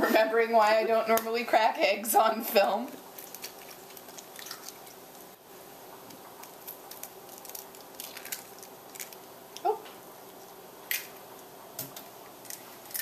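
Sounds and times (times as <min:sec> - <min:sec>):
eggshells cracking: 0:02.9 - 0:05.4, 0:06.0 - 0:13.0.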